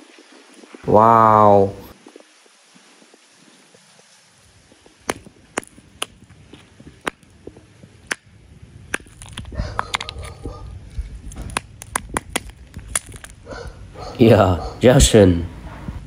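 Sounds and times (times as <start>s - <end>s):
ice cracking on concrete: 5.0s - 8.3s, 8.9s - 13.5s.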